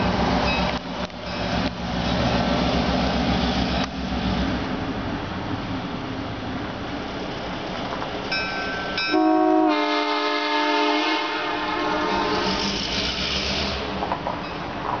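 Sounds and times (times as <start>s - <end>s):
locomotive air horn: 9.1s - 12.8s.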